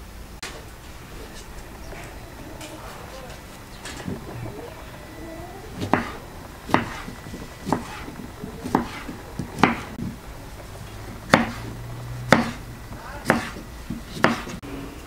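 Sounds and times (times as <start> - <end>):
blade knocking on wooden board: 5.8 - 10.2, 11.3 - 12.6, 13.2 - 14.6
knife slicing cucumber: 11.3 - 11.6, 13.2 - 14.6.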